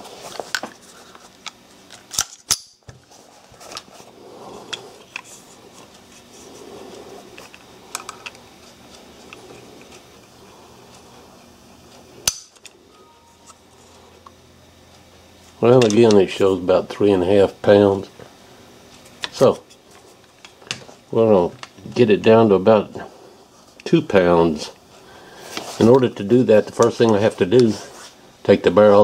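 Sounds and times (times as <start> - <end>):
pistol metal clicks: 2.1 - 2.8.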